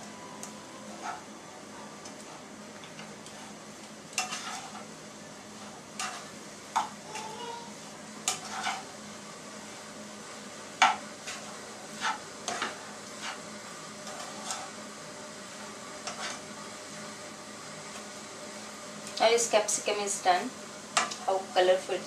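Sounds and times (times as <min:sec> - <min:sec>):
faint vegetables sizzling: 0:00.0 - 0:22.0
spoon scraping frying pan: 0:00.8 - 0:01.3, 0:02.1 - 0:04.9, 0:05.5 - 0:07.0, 0:08.2 - 0:09.0, 0:10.8 - 0:14.9, 0:15.6 - 0:16.5.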